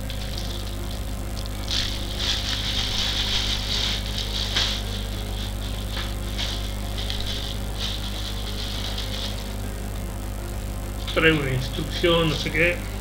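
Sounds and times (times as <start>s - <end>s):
plastic packaging crinkling: 0.0s - 9.6s
low hum: 0.0s - 13.0s.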